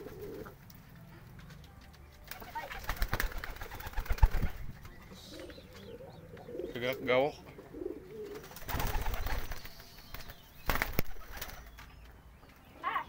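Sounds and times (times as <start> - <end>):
pigeons cooing: 0.0 - 0.7, 2.4 - 9.8.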